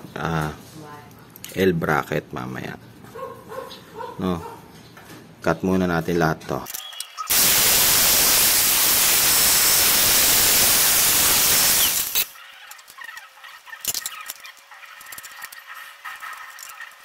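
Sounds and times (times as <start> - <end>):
angle grinder cutting metal: 7.3 - 12.3
metal pieces clicking: 11.8 - 16.9.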